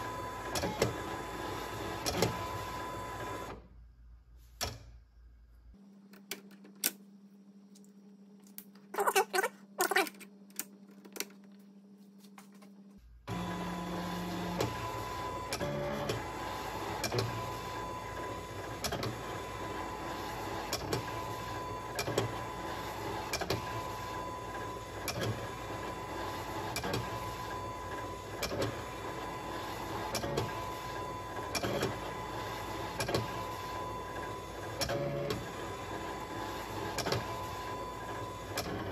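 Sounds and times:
plotter motors whining: 13.3 - 38.9.

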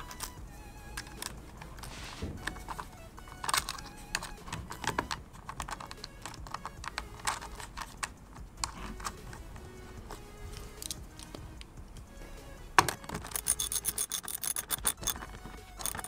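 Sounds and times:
hands clicking and tapping: 0.0 - 12.1.

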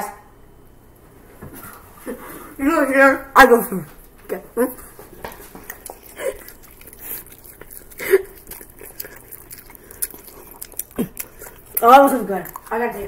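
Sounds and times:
chewing food close up: 4.7 - 13.0
mouth clicks and smacks: 5.3 - 13.0.

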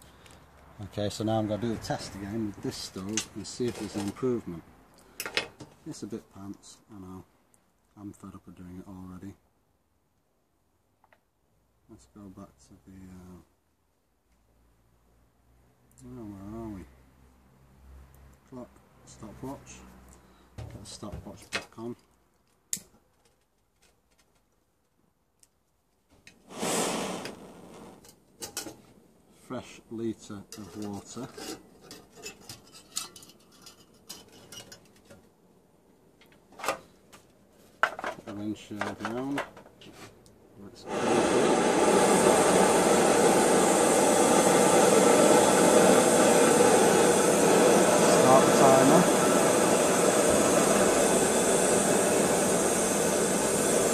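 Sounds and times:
gas stove burner hissing: 26.4 - 28.1, 40.8 - 53.9.

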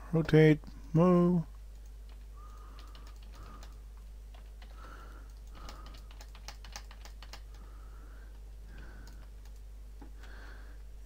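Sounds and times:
faint low hum: 0.0 - 11.0
computer keyboard and mouse clicks: 1.7 - 7.6, 8.7 - 10.1.

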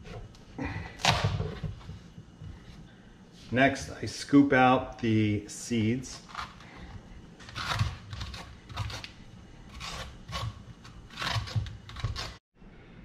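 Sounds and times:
spoon scraping squash: 5.8 - 12.4.

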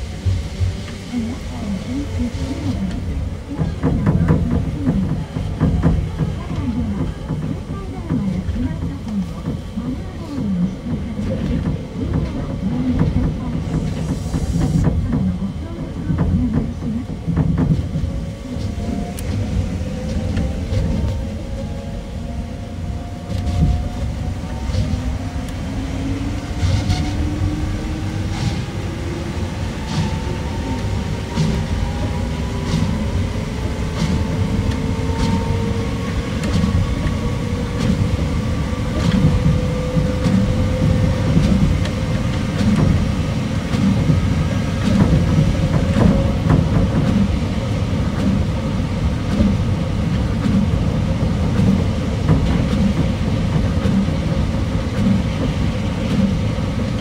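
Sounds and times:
monorail train rumble: 0.0 - 57.0.

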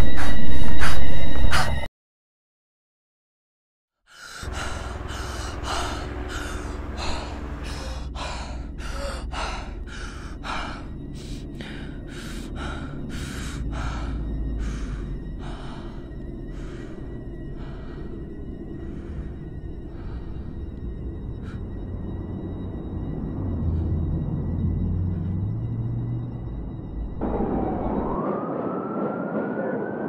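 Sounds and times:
woman panting: 0.0 - 1.9, 4.1 - 21.8
low steady hum: 4.5 - 28.1.

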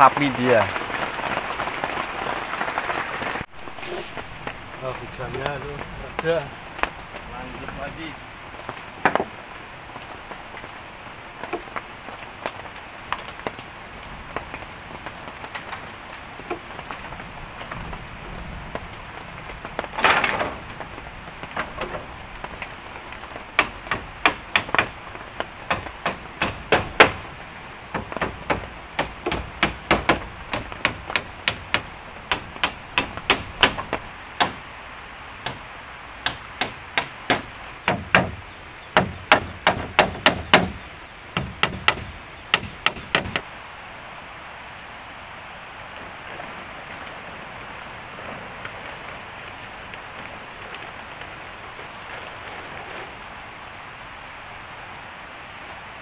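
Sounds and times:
rain hissing: 0.0 - 56.0
scraping rustle: 3.6 - 8.0, 19.4 - 23.4, 50.5 - 53.4
hand tool striking wood: 23.6 - 25.0, 25.7 - 27.2, 27.9 - 34.6, 36.2 - 38.4, 39.0 - 40.8, 41.4 - 43.4.

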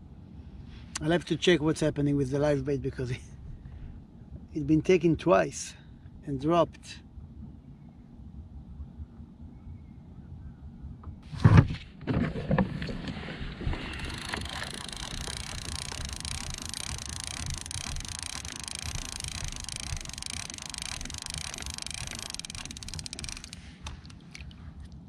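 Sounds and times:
fishing reel whirring: 13.8 - 24.2.

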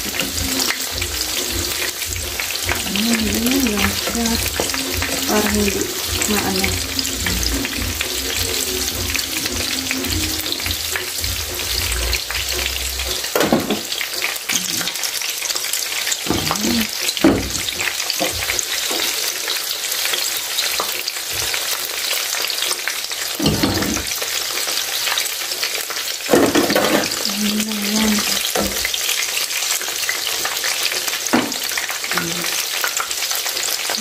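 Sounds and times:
shrimp deep-frying sizzle: 0.0 - 34.0
knocks in frying pan: 10.1 - 14.3, 16.2 - 19.2, 23.4 - 24.3, 26.3 - 27.3, 28.5 - 29.0, 31.2 - 31.9.

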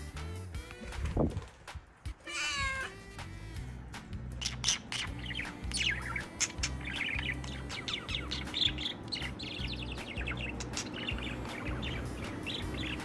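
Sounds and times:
budgerigar warbling: 4.3 - 13.0.

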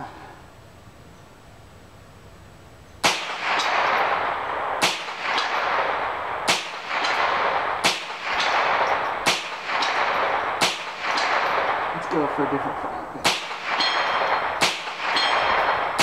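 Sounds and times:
rifle shots: 3.0 - 16.0
bullet clanging on steel pan: 13.7 - 15.8.

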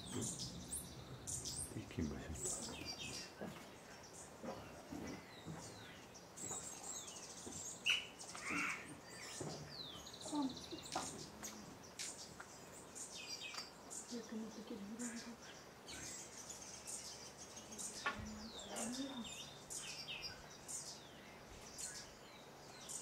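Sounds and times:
wild birds calling: 0.0 - 23.0.

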